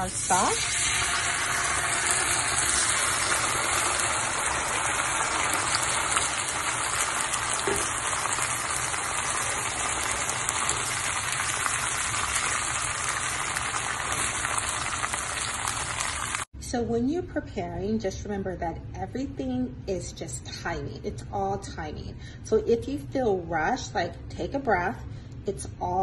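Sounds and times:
food sizzling in oil: 0.0s - 16.5s.

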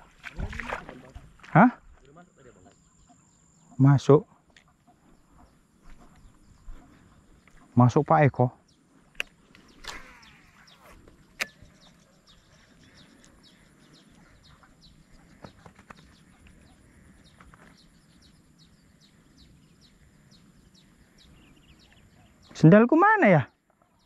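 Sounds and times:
small birds chirping: 0.2s - 24.0s
sharp click: 11.4s - 11.7s.

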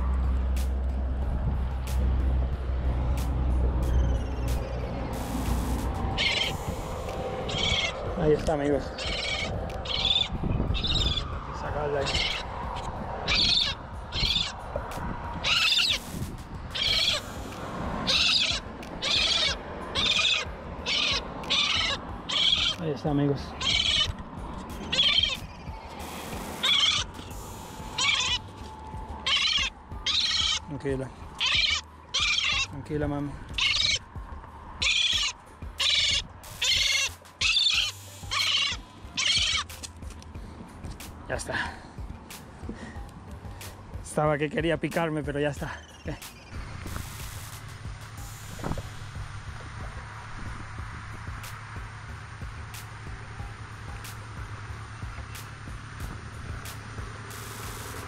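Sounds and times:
gull distress calls: 6.2s - 6.8s, 7.4s - 8.1s, 8.9s - 11.4s, 12.0s - 14.6s, 15.4s - 16.1s, 16.7s - 17.4s, 18.0s - 22.8s, 23.5s - 24.2s, 24.8s - 25.6s, 26.2s - 28.5s, 29.2s - 30.7s, 31.4s - 32.8s, 33.5s - 34.1s, 34.8s - 39.7s.

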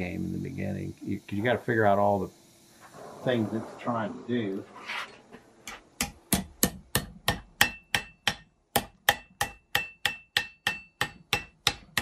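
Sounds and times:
hammer striking iron on anvil: 5.7s - 12.0s.

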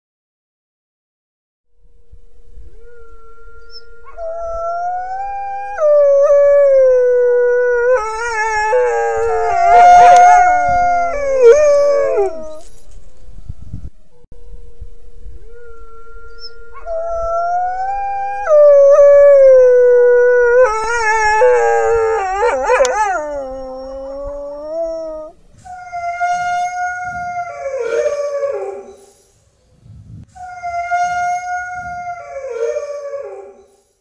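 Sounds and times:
wolves howling: 2.7s - 12.8s, 15.4s - 29.2s, 30.4s - 33.8s.

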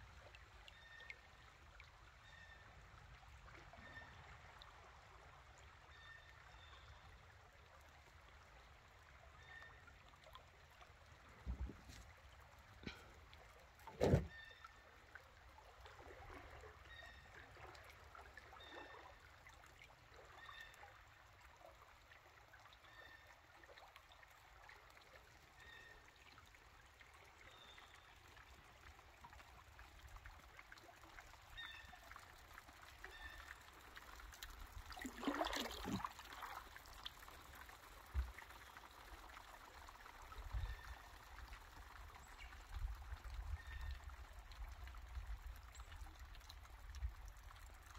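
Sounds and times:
creek water trickling: 0.0s - 47.9s
water splash: 13.8s - 14.4s, 35.0s - 36.6s.

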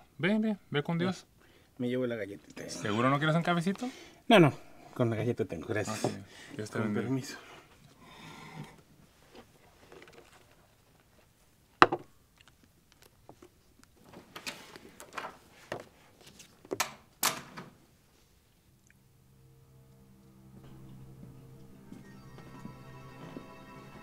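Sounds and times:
magazine pages turning: 16.1s - 16.6s.

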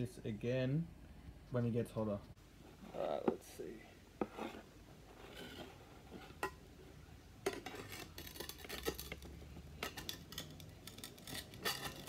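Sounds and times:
spatula scraping frying pan: 4.2s - 6.6s, 7.4s - 12.0s.

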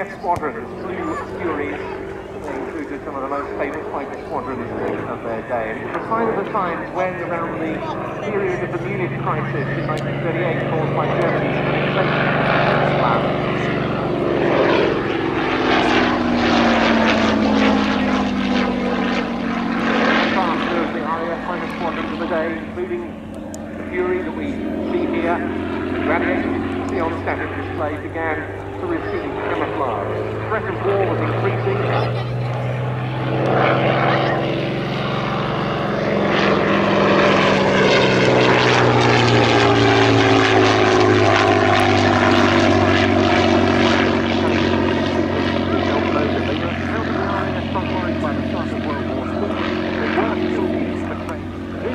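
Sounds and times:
propeller plane engine droning: 0.0s - 51.9s.

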